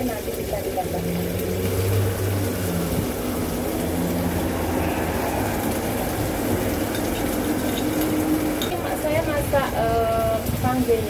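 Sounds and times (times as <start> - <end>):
rumbling kitchen noise: 0.0 - 11.0.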